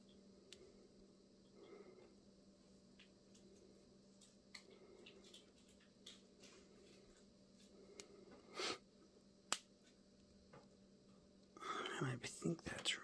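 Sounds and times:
faint steady hum: 0.0s - 13.0s
fishing line ticks and rustles: 2.9s - 8.1s.

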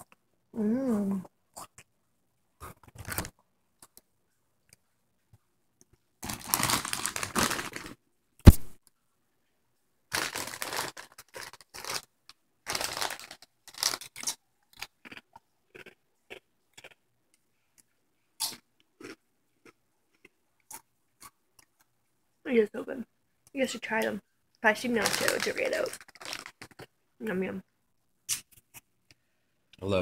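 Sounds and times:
crunching tortilla chips: 6.2s - 8.0s, 10.1s - 17.0s, 25.0s - 26.9s
foil chip bag crinkling: 6.2s - 8.0s, 10.1s - 15.1s, 24.8s - 26.9s.

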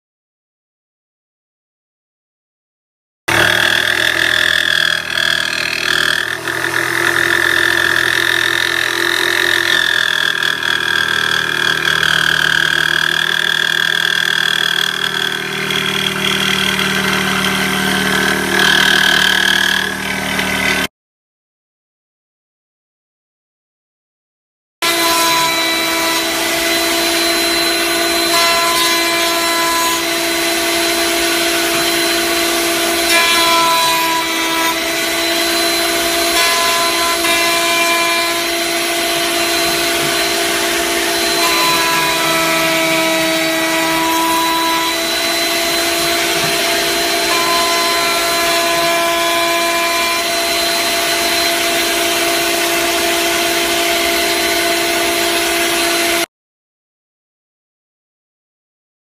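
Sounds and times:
router whining: 3.3s - 20.9s, 24.8s - 56.3s
vacuum pulling dust: 34.2s - 56.2s.

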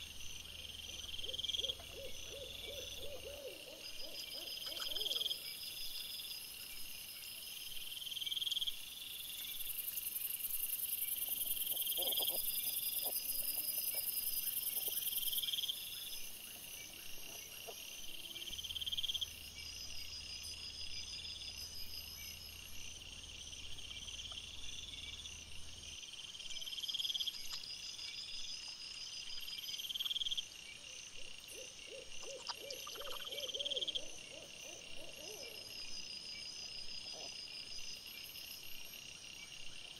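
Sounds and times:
low pulsing animal sounds: 0.0s - 5.5s, 10.9s - 20.8s.

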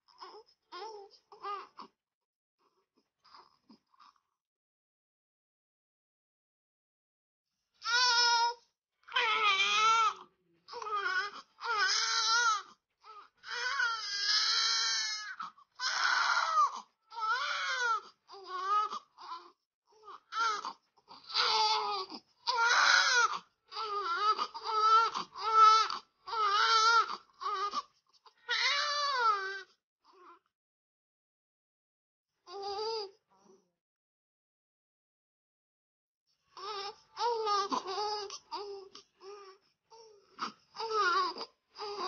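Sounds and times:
newborn baby crying: 0.1s - 1.8s, 7.8s - 29.7s, 36.6s - 42.0s.

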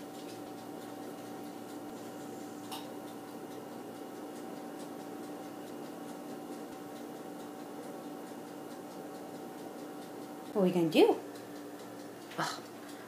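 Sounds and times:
appliance hum: 0.0s - 13.0s
faint irregular ticking: 0.0s - 13.0s.

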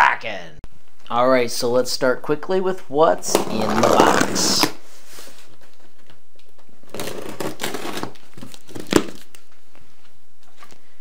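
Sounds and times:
packing tape and cardboard tearing: 3.2s - 4.8s, 6.8s - 9.4s.

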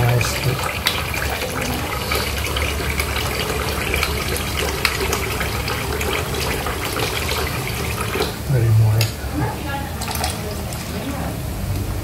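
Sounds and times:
tap running into metal sink: 0.0s - 8.4s.

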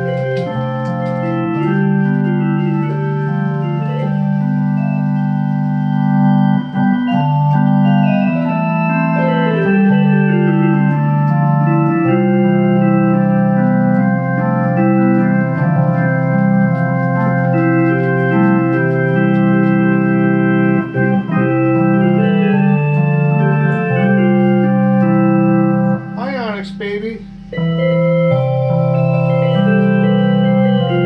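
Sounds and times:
organ playing sustained chords: 0.0s - 31.0s.

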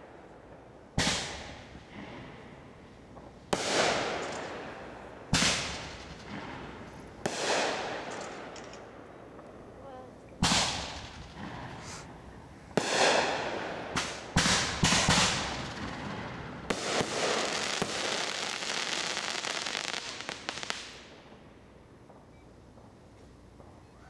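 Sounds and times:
firework crackling: 0.0s - 24.0s
firework booms: 0.9s - 8.6s, 10.4s - 21.5s.

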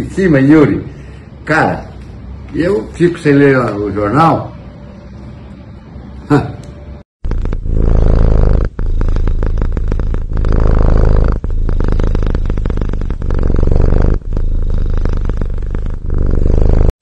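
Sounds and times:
cat purring: 7.2s - 17.0s.

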